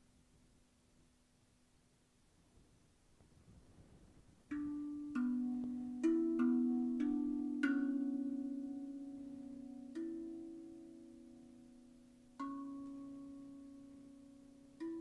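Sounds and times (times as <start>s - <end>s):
steel tongue drum notes: 4.5s - 15.0s.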